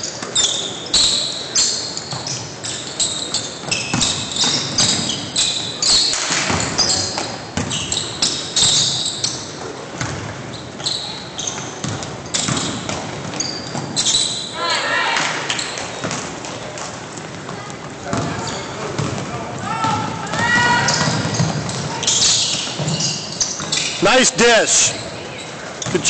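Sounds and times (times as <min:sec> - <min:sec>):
sneakers squeaking: 0:00.0 - 0:26.0
basketball bouncing on wooden floor: 0:18.1 - 0:18.4, 0:19.0 - 0:19.2.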